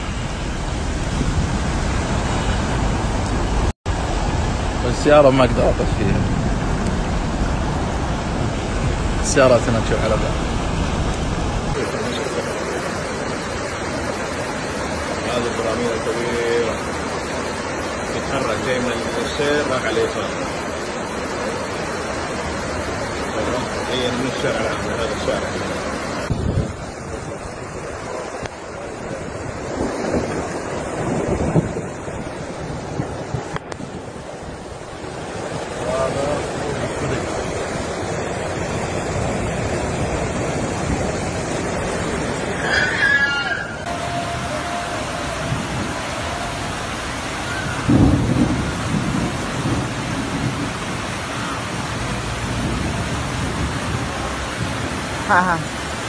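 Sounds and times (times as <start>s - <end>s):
wind noise on microphone: 0.0s - 15.3s, 26.0s - 56.0s
floodwater rushing: 0.0s - 56.0s
heavy rain: 0.0s - 56.0s
low rumble: 5.6s - 11.8s.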